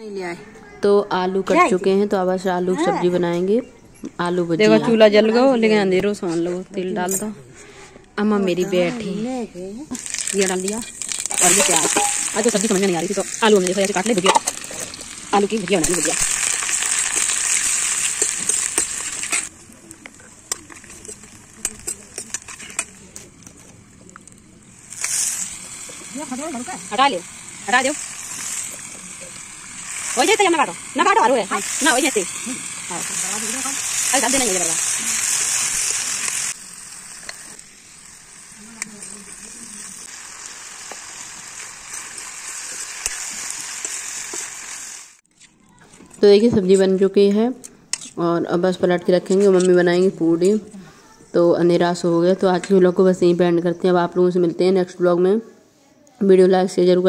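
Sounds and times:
onions sizzling in hot oil: 9.0s - 45.3s
metal spoon scraping a pan: 10.0s - 15.1s, 15.7s - 19.5s, 20.5s - 23.7s, 47.9s - 48.2s.

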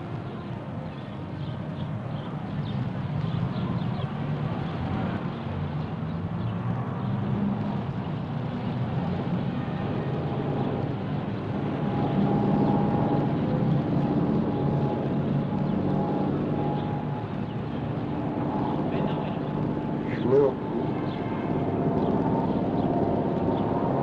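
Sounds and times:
low rumble of traffic: 0.0s - 24.0s
faint steady whine: 7.8s - 24.0s.

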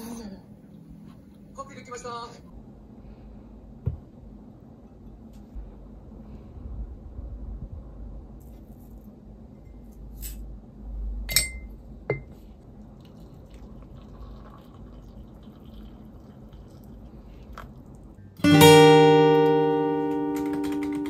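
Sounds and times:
spoon clinking on enamel mug: 11.3s - 12.3s
hot water pouring into mug: 12.8s - 18.2s.

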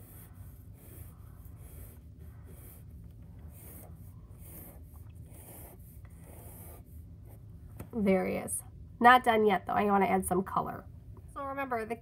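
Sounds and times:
marker scratching on paper: 0.0s - 7.4s.

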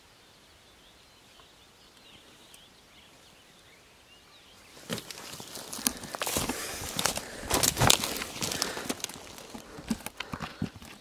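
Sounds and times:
faint bird chirps: 0.0s - 6.1s
rustling and knocks of gear: 4.8s - 11.0s.

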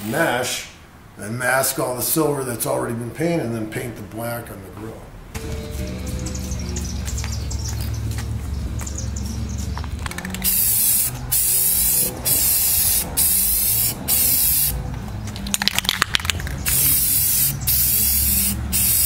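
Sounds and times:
spray can rattle: 10.0s - 19.0s
aerosol spray can hissing: 10.3s - 14.8s, 16.6s - 19.0s.

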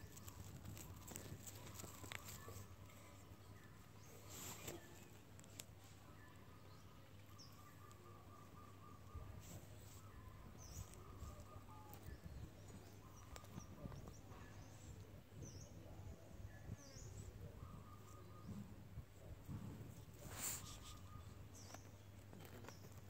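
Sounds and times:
faint rustling and soft bumps: 9.3s - 23.0s.

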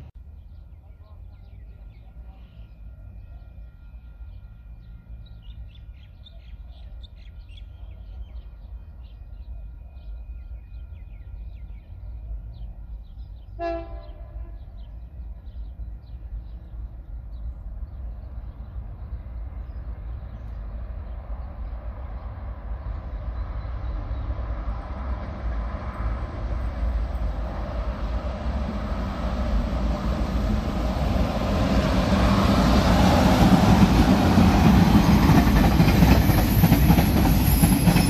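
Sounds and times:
train rumbling: 0.0s - 38.0s
birds chirping: 0.3s - 38.0s
train horn blast: 13.5s - 14.9s.

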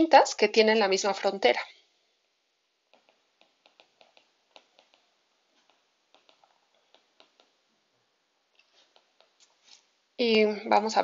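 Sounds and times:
stylus tapping on tablet screen: 2.2s - 7.6s, 8.5s - 9.6s.

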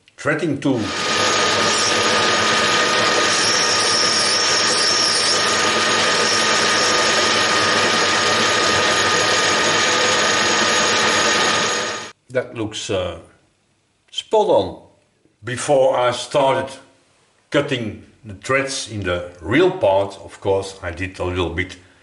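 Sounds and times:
faint high whine: 0.7s - 12.1s
metal lathe whirring: 0.8s - 12.1s.

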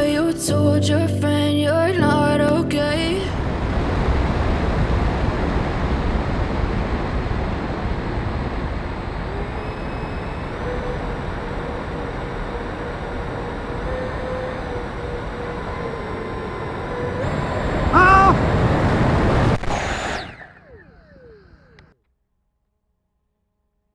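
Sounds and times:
fan whine rising in pitch: 2.0s - 22.0s
wind rushing over camera: 3.0s - 22.0s.

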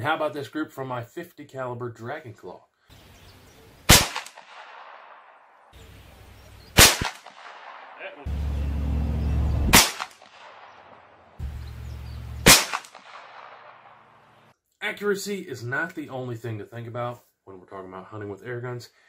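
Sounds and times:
air rifle shot crack: 3.9s - 5.4s, 6.8s - 8.3s, 9.7s - 11.4s, 12.4s - 14.4s
low hum: 8.3s - 9.9s, 10.5s - 14.4s.

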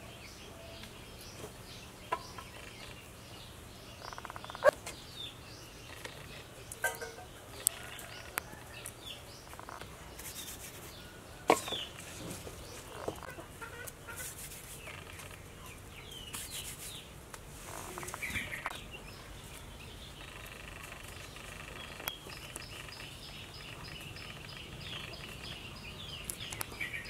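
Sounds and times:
small birds chirping: 0.0s - 27.0s
chickens clucking: 4.0s - 5.0s, 5.7s - 10.0s, 10.9s - 16.4s, 17.7s - 27.0s.

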